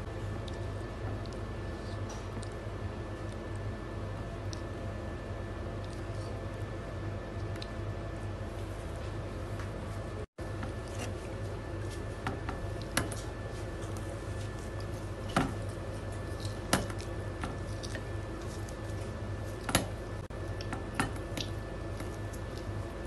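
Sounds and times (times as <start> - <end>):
steady low hum: 0.0 - 23.0
chewing fried food: 12.7 - 23.0.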